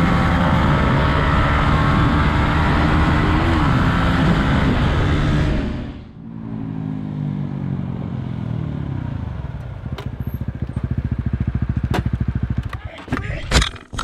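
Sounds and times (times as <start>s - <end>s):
motorcycle engines idling: 7.4s - 13.1s.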